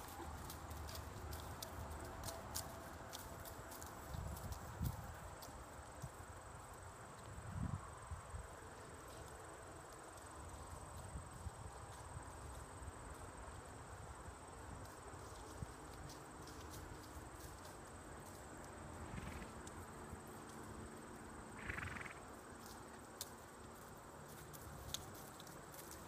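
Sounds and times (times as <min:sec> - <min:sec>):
horse hooves thudding: 0:00.0 - 0:07.3.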